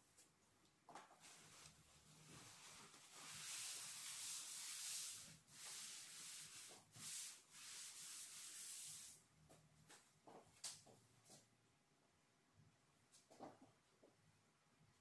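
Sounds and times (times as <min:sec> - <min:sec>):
paper towel rustling on fur: 0:01.2 - 0:09.1.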